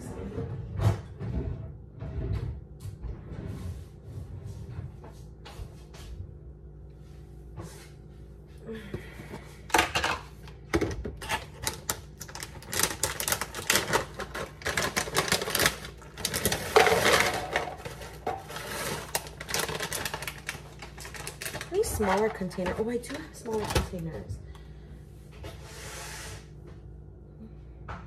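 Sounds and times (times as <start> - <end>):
crackers rattling into plastic container: 10.8 - 24.1
plastic snack bag crinkling: 11.2 - 24.1.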